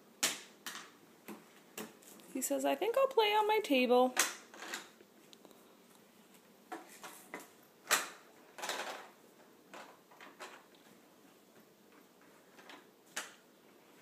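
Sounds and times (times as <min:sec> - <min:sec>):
plastic toy roller clicking: 0:07.9 - 0:09.1.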